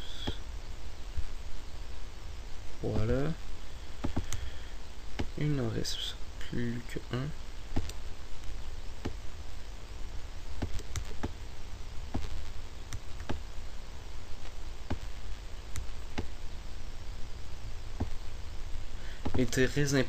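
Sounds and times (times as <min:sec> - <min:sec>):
steady low hum: 0:00.0 - 0:20.0
computer mouse clicking: 0:07.7 - 0:08.0.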